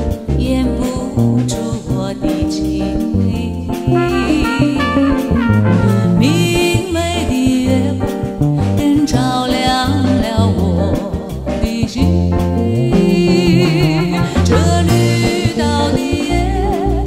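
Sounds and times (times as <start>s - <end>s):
upbeat jazzy song with brass: 3.7s - 8.3s, 12.3s - 17.0s.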